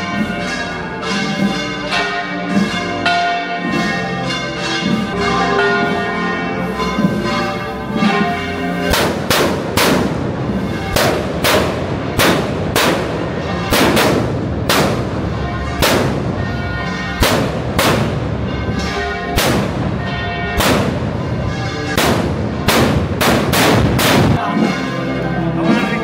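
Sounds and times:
church bells ringing: 0:00.0 - 0:26.0
firework bangs: 0:07.9 - 0:24.7.

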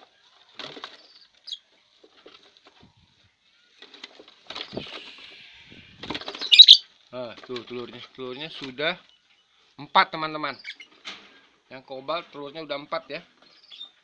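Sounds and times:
high bird chirp: 0:06.4 - 0:06.8.

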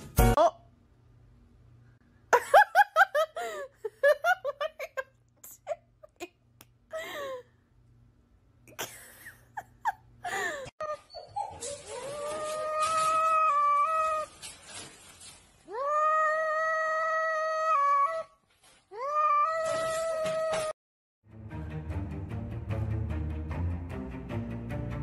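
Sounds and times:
person giggling: 0:02.3 - 0:07.5, 0:08.7 - 0:10.7.

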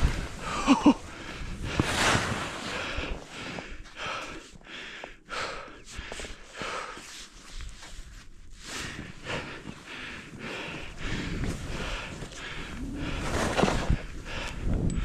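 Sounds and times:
skis swishing through powder: 0:00.0 - 0:03.4, 0:13.0 - 0:14.0
person breathing hard: 0:00.0 - 0:07.8, 0:08.5 - 0:15.0.

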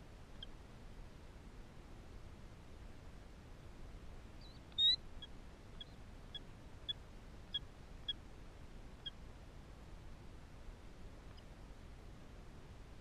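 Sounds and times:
bird short high peeps: 0:04.4 - 0:05.0.

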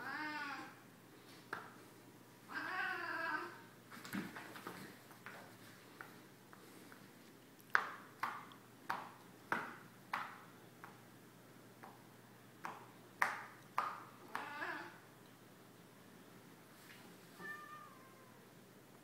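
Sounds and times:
wavering cat call: 0:17.4 - 0:18.5.

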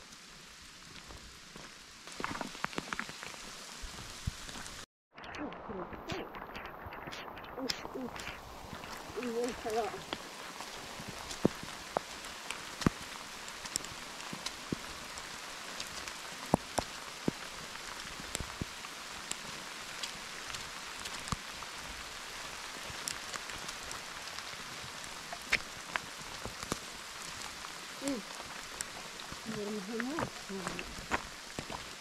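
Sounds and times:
rain on rocky ground: 0:00.0 - 0:04.9, 0:05.5 - 0:32.0.

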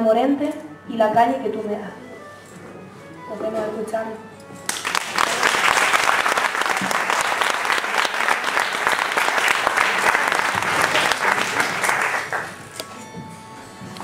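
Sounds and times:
audience applauding: 0:04.7 - 0:12.7.

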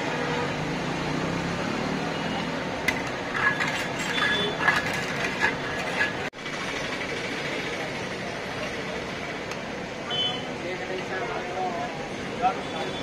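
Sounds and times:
metal ladle clinking on pot: 0:03.3 - 0:06.2.

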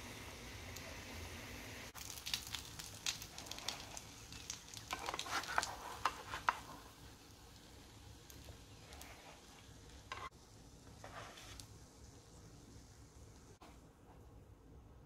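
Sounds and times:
butter sizzling in frying pan: 0:00.0 - 0:13.6.

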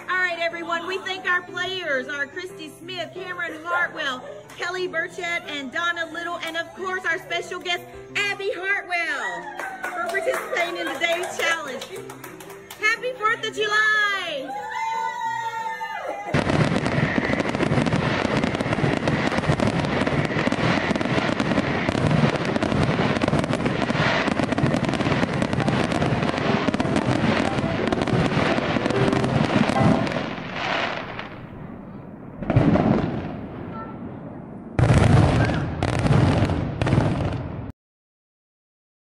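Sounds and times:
fireworks crackling: 0:10.1 - 0:13.9, 0:16.3 - 0:37.7.

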